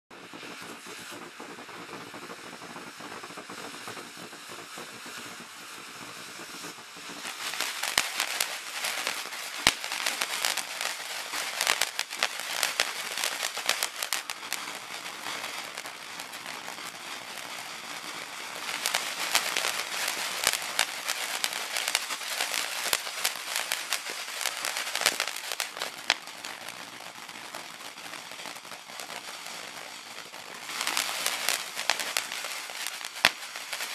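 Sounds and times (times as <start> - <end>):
firework crackling and pops: 0.1 - 33.9
fireworks fountain hissing: 0.1 - 33.9.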